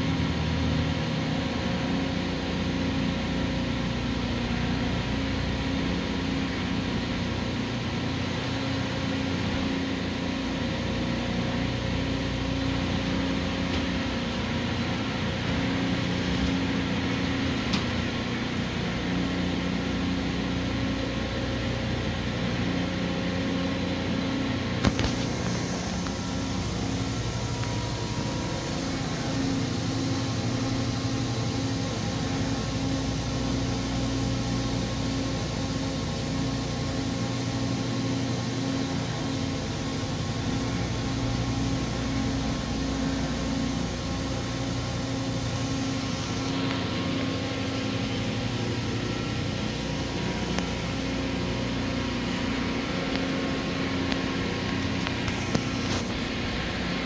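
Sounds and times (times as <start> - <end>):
machine-shop mechanical hum: 0.0 - 57.0
broad hiss: 24.9 - 52.7.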